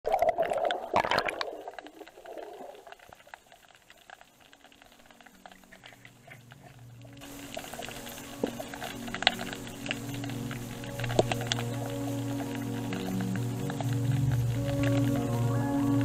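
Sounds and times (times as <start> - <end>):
faint underwater crackling: 0.0 - 16.0
rush of water and bubbles: 0.0 - 16.0
soft low music tones: 3.4 - 16.0.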